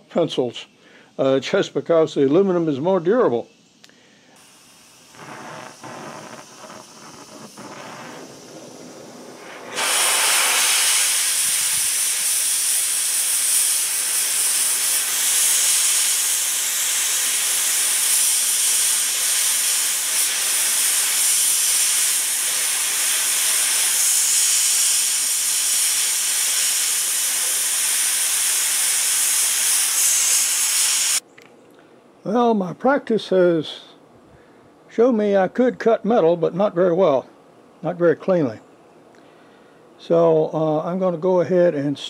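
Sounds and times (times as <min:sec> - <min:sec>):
cutting torch hissing: 0:04.2 - 0:31.2.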